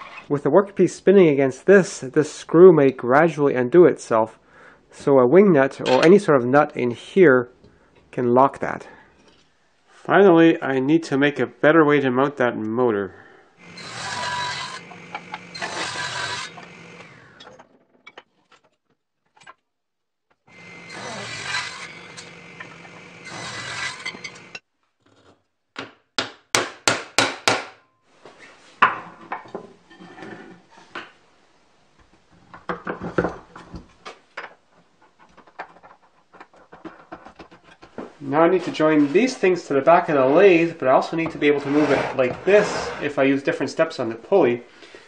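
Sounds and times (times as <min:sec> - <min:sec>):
table saw cutting wood: 0:13.6 - 0:17.4, 0:20.5 - 0:24.6
wooden parts knocking and scraping: 0:13.7 - 0:19.6, 0:32.1 - 0:39.4.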